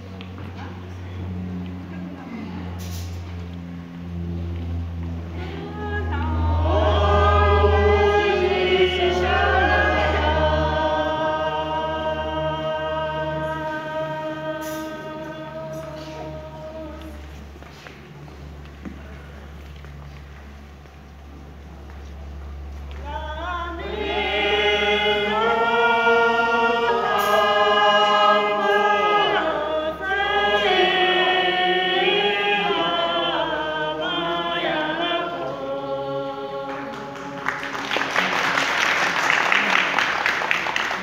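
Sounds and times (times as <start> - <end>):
group singing unaccompanied: 4.2 - 17.6, 23.0 - 38.9
audience applause: 36.8 - 41.0.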